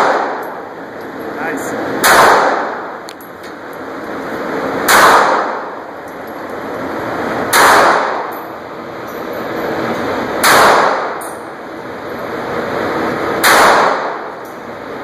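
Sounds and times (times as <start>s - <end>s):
pistol shots: 0.0s - 0.6s, 2.0s - 2.9s, 4.8s - 5.8s, 7.5s - 8.4s, 10.4s - 11.2s, 13.4s - 14.3s.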